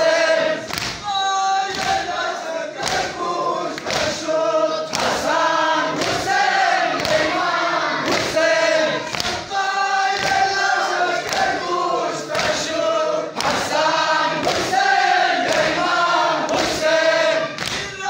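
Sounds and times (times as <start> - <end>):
crowd of men chanting: 0.0 - 18.0
rhythmic chest-beating thumps: 0.0 - 18.0.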